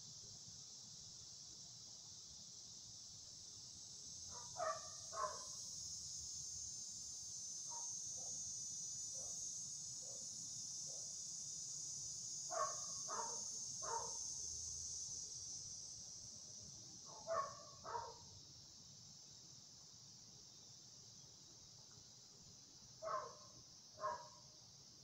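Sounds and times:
dog barking: 4.4 - 5.5, 12.5 - 14.2, 17.1 - 18.2, 23.0 - 24.4.

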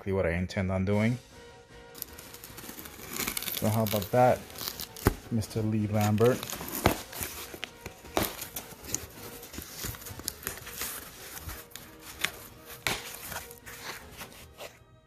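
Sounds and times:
faint background music: 0.0 - 15.0
cardboard box flaps rustling: 6.0 - 14.8.

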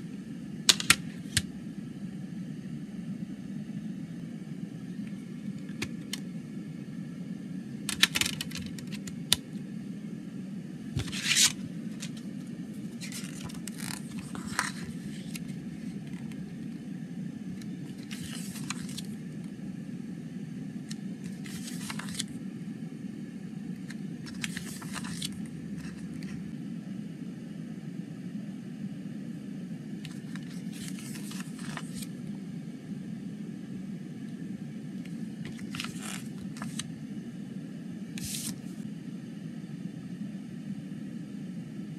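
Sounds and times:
low hum: 0.0 - 41.9
paper pages rustling: 0.7 - 1.5, 7.9 - 9.4, 11.0 - 16.4, 17.6 - 19.2, 20.9 - 22.4, 23.9 - 26.4, 30.1 - 32.1, 35.4 - 36.9, 38.2 - 38.8
plastic case clicks: 0.7 - 1.5.

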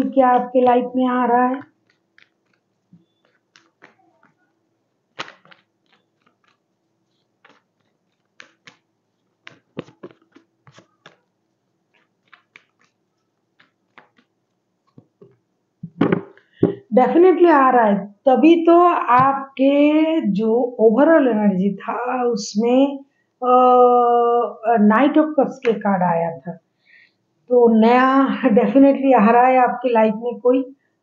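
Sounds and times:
cards being shuffled by hand: 1.5 - 4.5, 5.1 - 16.8.

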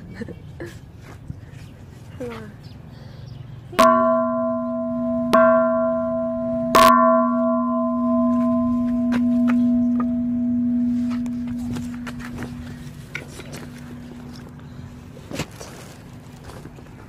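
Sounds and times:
large temple bell ringing: 3.8 - 12.8.

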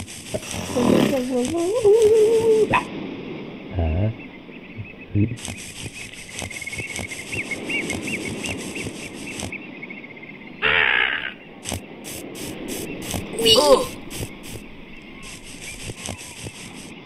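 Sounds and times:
footsteps crunching: 5.4 - 9.6, 11.7 - 17.0
cartoon bird squawks: 10.6 - 11.4.

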